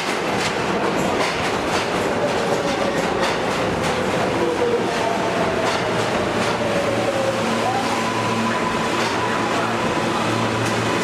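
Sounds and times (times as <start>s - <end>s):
subway train rumble and whine: 0.0s - 11.0s.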